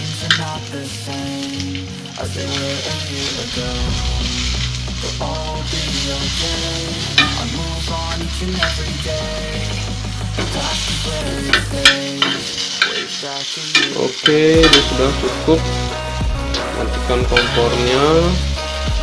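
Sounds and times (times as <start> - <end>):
vegetables sizzling in a hot pan: 0.0 - 19.0
metal spoon scraping a pan: 7.1 - 7.6, 9.7 - 15.9.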